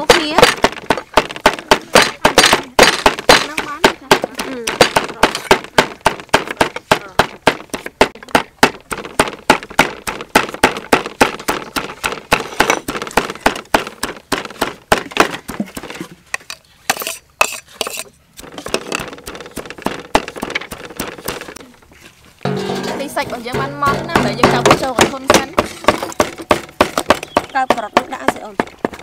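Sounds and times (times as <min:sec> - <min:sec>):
cleaver chopping on wooden block: 0:00.0 - 0:21.6, 0:23.5 - 0:29.0.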